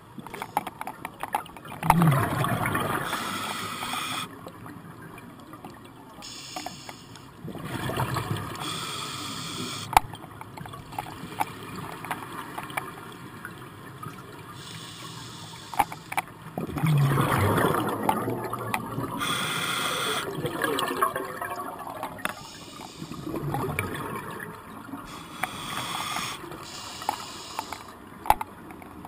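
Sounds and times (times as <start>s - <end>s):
underwater air bubbling: 1.7s - 4.4s, 14.5s - 28.2s.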